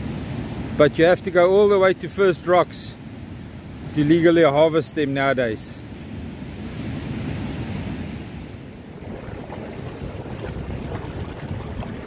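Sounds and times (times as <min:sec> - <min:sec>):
small waves washing on sand: 0:00.0 - 0:12.0
wind buffeting microphone: 0:06.6 - 0:12.0.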